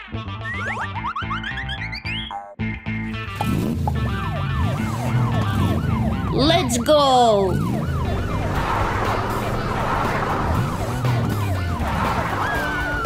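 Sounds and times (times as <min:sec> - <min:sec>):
fire engine siren yelping: 0:04.0 - 0:13.0.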